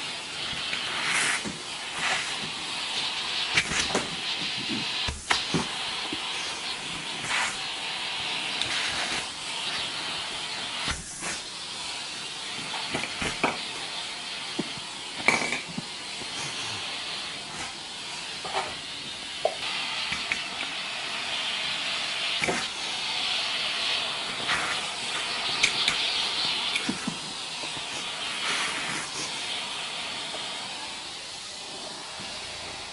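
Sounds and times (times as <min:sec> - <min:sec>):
vacuum cleaner running: 0:00.0 - 0:32.9.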